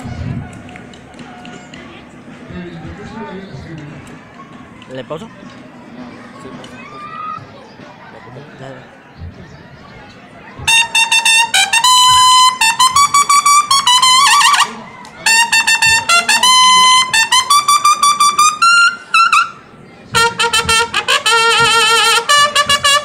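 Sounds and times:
brass horn military call: 10.7s - 23.0s.

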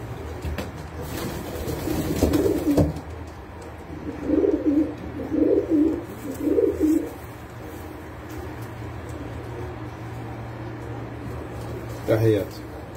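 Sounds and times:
pigeons cooing: 1.0s - 3.1s, 3.7s - 12.0s.

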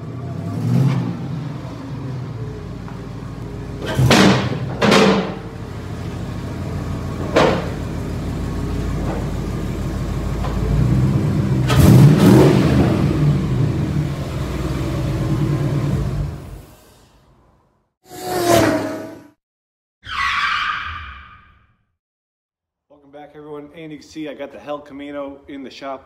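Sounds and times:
vee eight engine idling and revving: 0.0s - 16.7s.

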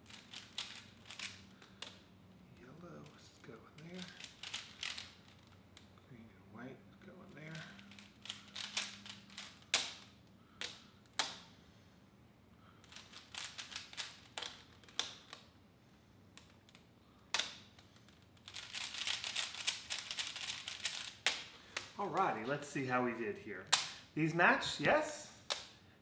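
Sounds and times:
puzzle cube clicking as turned: 0.1s - 2.0s, 3.8s - 5.9s, 7.5s - 11.4s, 12.8s - 15.5s, 16.4s - 21.9s.

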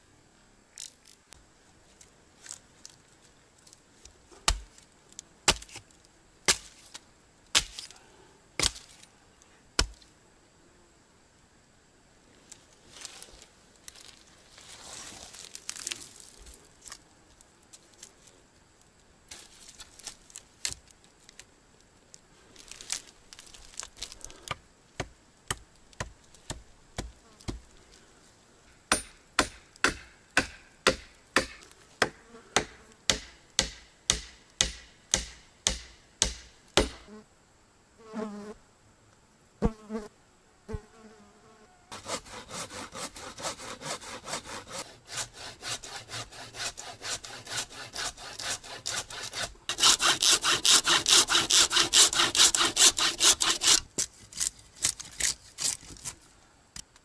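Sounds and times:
fly buzzing: 39.6s - 40.1s.

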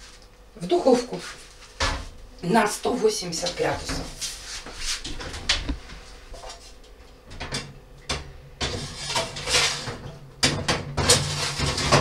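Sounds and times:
dishware clattering on oven rack: 7.4s - 12.0s.

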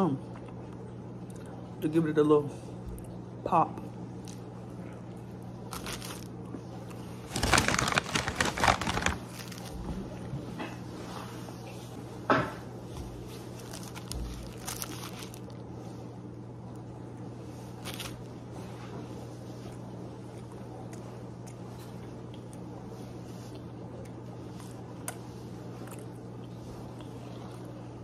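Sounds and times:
steady low hum: 0.0s - 28.0s
paper wrapper crinkling: 5.7s - 6.4s, 7.2s - 9.9s, 13.4s - 15.6s, 17.8s - 18.3s.

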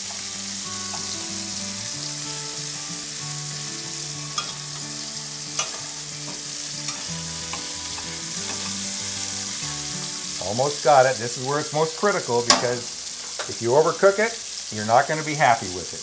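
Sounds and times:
meat sizzling in frying pan: 0.0s - 16.0s
metal utensil clicking on pan: 4.3s - 4.6s, 5.6s - 8.8s, 12.5s - 13.6s.

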